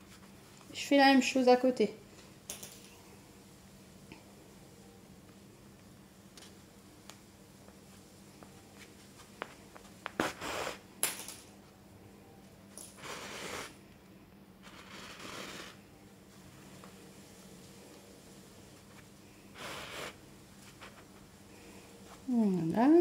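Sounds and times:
yarn scratching against fabric: 0:13.0 - 0:13.8, 0:14.6 - 0:15.8.

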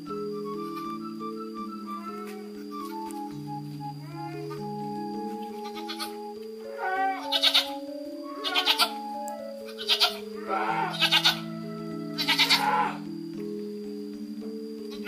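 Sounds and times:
background music of held notes: 0:00.0 - 0:15.0
livestock bleating: 0:04.0 - 0:04.7, 0:05.6 - 0:09.0, 0:09.7 - 0:13.1.

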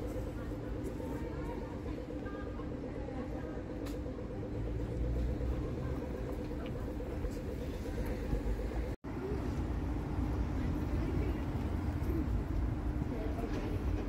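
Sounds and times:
fluttering hum: 0:00.0 - 0:09.0
road traffic rumble: 0:00.0 - 0:14.0.

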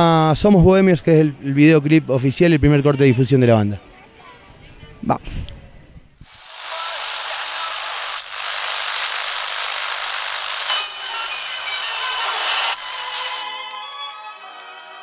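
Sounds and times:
radio static hiss: 0:06.2 - 0:13.5.

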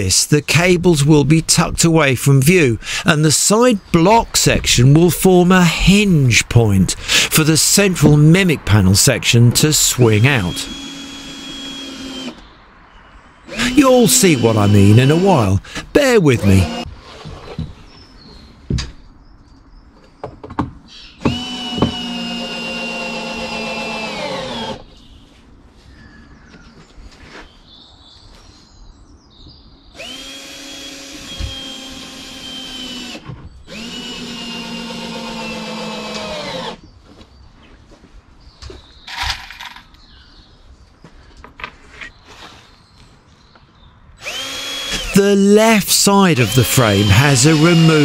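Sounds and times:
cordless drill motor whine: 0:10.6 - 0:12.4, 0:16.6 - 0:16.8, 0:21.2 - 0:24.8, 0:30.0 - 0:36.8, 0:44.2 - 0:45.2, 0:46.4 - 0:48.0
knocks and clicks handling wood: 0:20.0 - 0:20.8.

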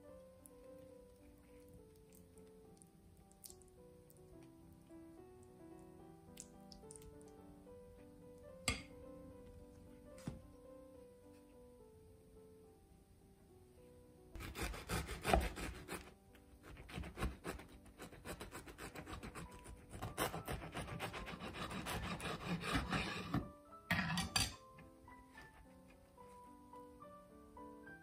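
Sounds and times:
soft piano music: 0:00.0 - 0:28.0
knife sawing through toasted bread: 0:14.4 - 0:23.5.

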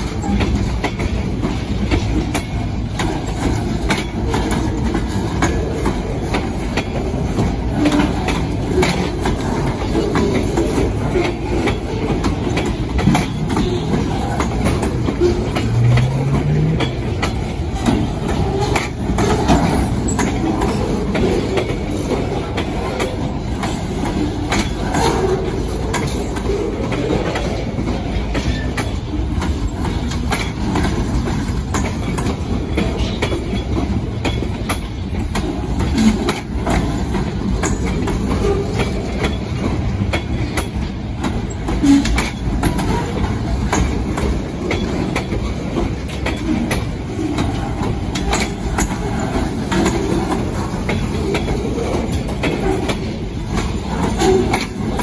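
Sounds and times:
train wheels rumbling on rails: 0:00.0 - 0:55.0
wheels clanking over rail joints: 0:00.0 - 0:55.0.

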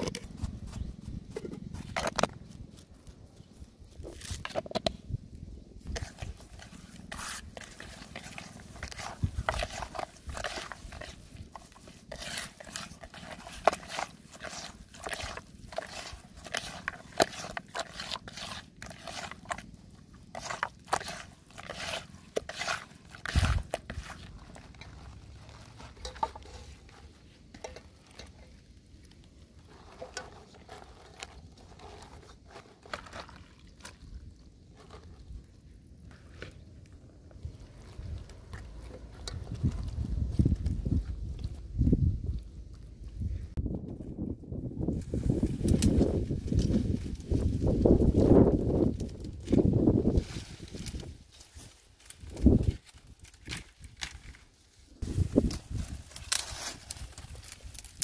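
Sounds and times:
squishing fish paste: 0:05.8 - 0:43.1.

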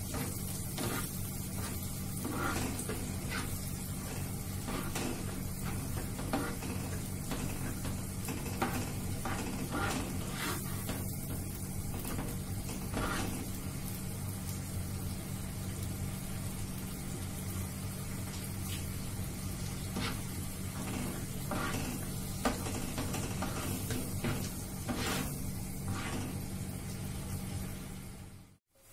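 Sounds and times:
spatula scraping and tapping pan: 0:00.0 - 0:13.6, 0:19.8 - 0:26.4
food sizzling in a frying pan: 0:00.0 - 0:28.9.

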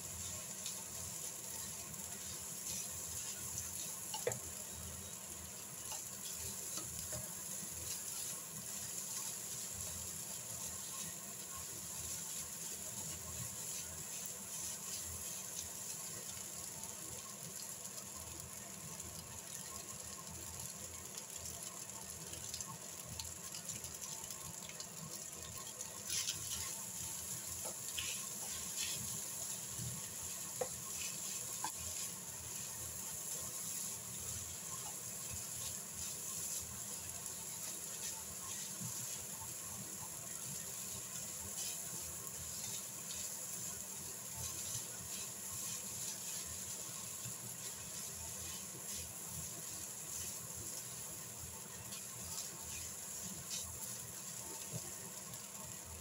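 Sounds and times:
rice sizzling in a frying pan: 0:00.0 - 0:56.0
spatula scraping a pan: 0:05.8 - 0:15.7, 0:25.5 - 0:39.4, 0:40.0 - 0:51.1, 0:51.8 - 0:54.9.

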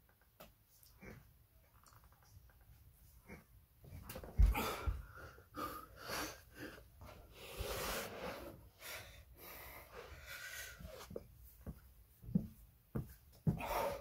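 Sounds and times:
man breathing hard: 0:04.4 - 0:11.2, 0:13.5 - 0:14.0.

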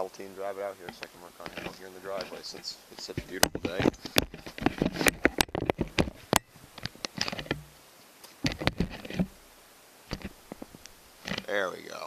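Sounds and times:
footsteps: 0:00.6 - 0:09.3.

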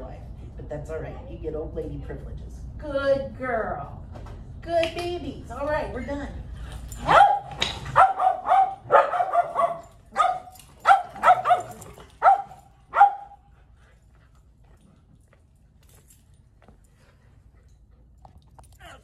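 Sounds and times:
dog barking: 0:07.0 - 0:13.4.

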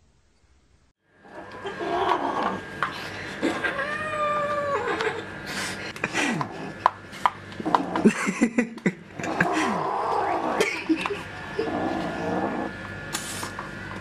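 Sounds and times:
cat yowling: 0:03.4 - 0:05.1.

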